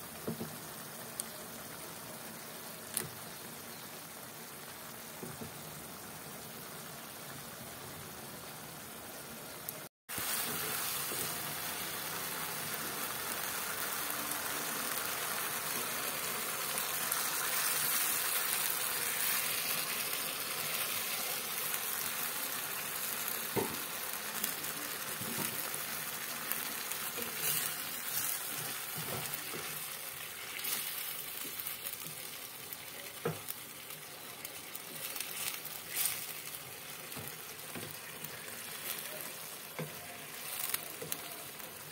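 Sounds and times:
noodles sizzling in a pot: 0.0 - 41.9.

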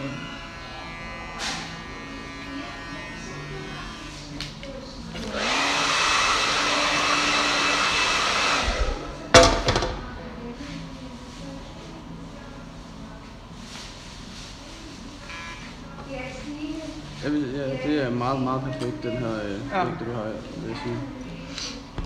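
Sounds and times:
electric hair clippers buzzing: 0.0 - 4.3, 5.2 - 9.1
hair dryer blowing: 5.2 - 9.2.

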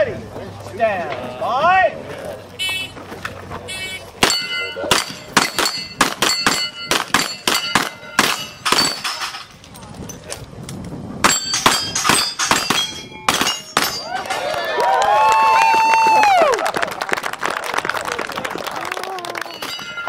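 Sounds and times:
steel targets ringing: 4.2 - 9.6, 11.2 - 14.5, 19.5 - 20.0.

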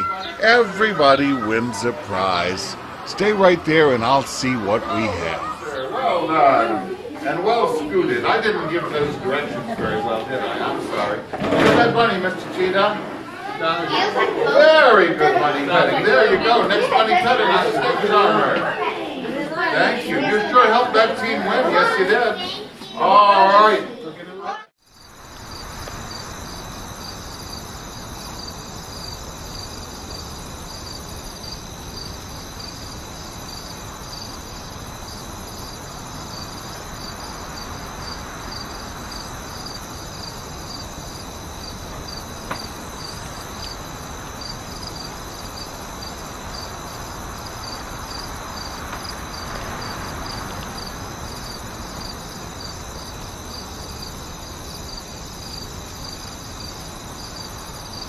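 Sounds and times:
low constant hiss: 0.0 - 9.7, 24.9 - 58.0
crickets chirping: 0.0 - 11.2, 24.8 - 58.0.

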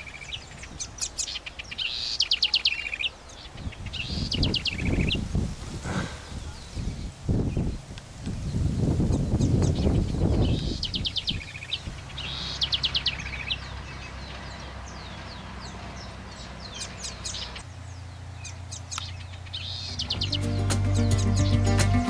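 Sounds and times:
songbird singing: 0.0 - 22.0.

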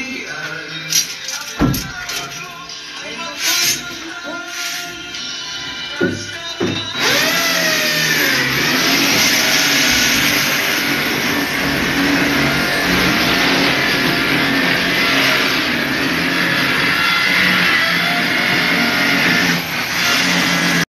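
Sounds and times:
motor running loudly: 7.0 - 20.8.

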